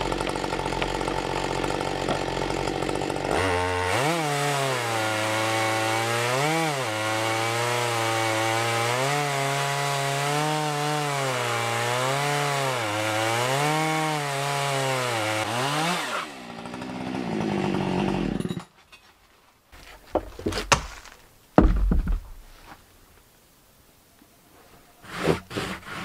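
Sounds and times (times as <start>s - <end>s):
chainsaw ripping a log: 0.0s - 18.6s
wooden knocks: 19.8s - 22.7s
heavy thump of wooden slab: 20.1s - 22.8s.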